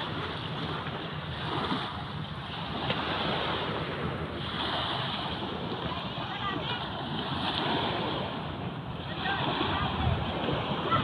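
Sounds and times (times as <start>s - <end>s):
small waves washing onto beach: 0.0s - 11.0s
wind rumbling on microphone: 0.0s - 11.0s.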